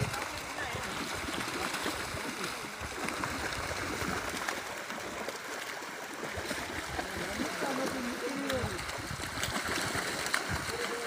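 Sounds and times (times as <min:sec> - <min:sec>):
faint voices: 0:00.0 - 0:03.8, 0:10.2 - 0:11.0
running water rushing: 0:00.0 - 0:11.0
small water splashes: 0:00.0 - 0:11.0.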